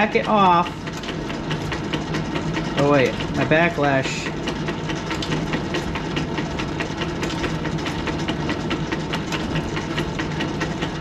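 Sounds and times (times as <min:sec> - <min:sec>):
lathe humming: 0:00.0 - 0:11.0
regular ticking from drive: 0:00.0 - 0:11.0.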